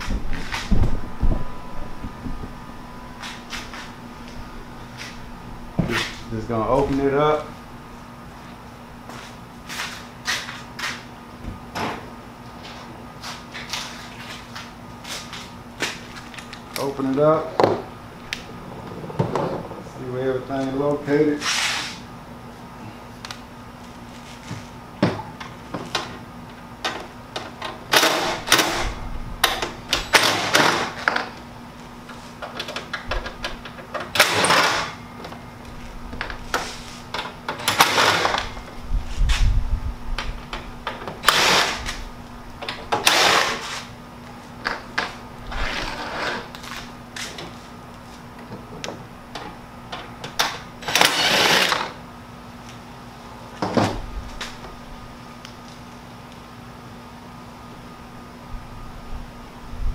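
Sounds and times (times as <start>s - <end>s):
cordless drill whirring: 50.8s - 51.9s.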